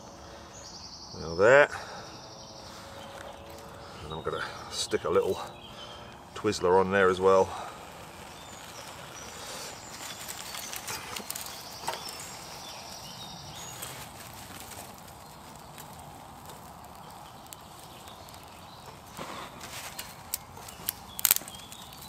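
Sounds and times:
fire hiss: 0:02.6 - 0:22.0
sticks snapping and clicking: 0:14.0 - 0:22.0.

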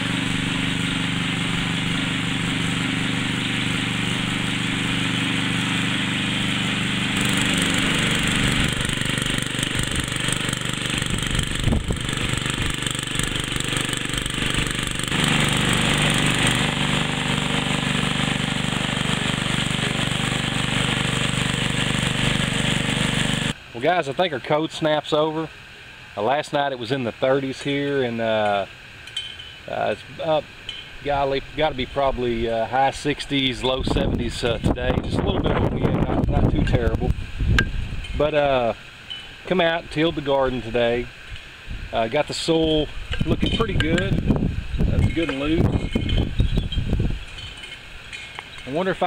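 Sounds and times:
rototiller engine running: 0:00.0 - 0:23.6, 0:42.0 - 0:49.0.

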